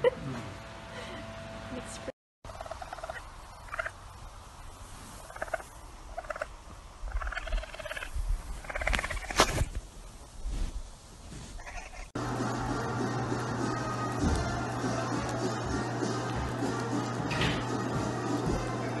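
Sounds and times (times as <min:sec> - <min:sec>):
baby raccoon chittering: 0:07.1 - 0:09.4.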